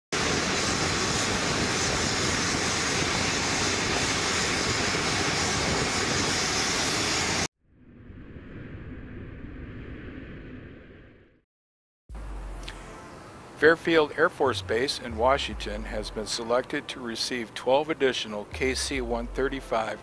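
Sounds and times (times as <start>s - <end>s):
jet engines running: 0.2s - 11.2s, 12.1s - 20.0s
intro sound effect: 12.1s - 17.1s.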